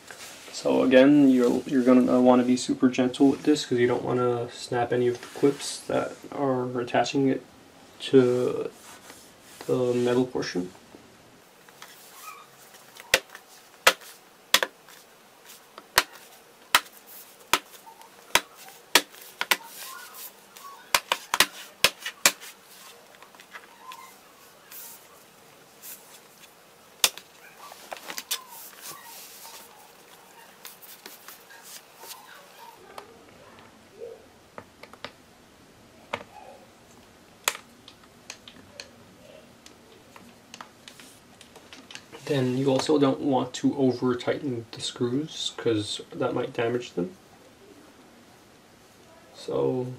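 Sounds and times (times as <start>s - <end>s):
plastic clips snapping: 27.0s - 27.3s.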